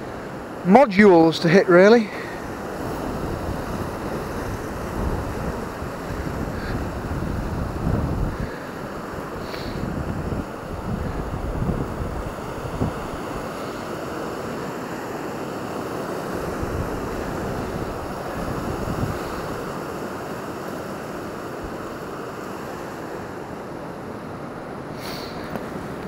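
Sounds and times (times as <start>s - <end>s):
waves washing over pebbles: 0.0s - 26.0s
wind buffeting microphone: 2.2s - 13.6s, 16.1s - 20.0s.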